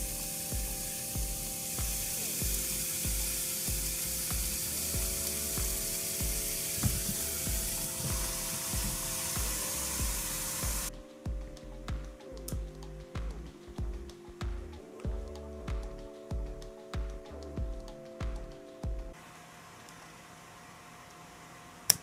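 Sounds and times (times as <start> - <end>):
steaks sizzling on a grill: 0.0 - 10.9
background music with steady beat: 0.0 - 19.2.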